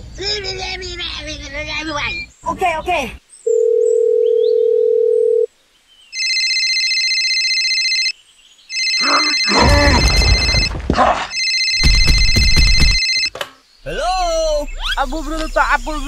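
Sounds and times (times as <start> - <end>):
dial tone: 3.5 - 5.5, 8.8 - 10.7
telephone ringtone: 3.5 - 5.5, 6.2 - 8.1, 8.7 - 10.7, 11.3 - 13.3.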